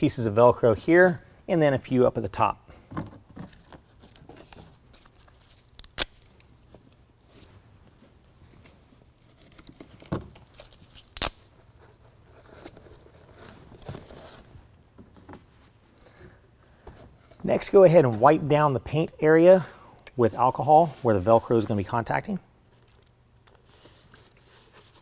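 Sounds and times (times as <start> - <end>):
velcro ripping: 5.0 - 6.4, 10.5 - 11.5.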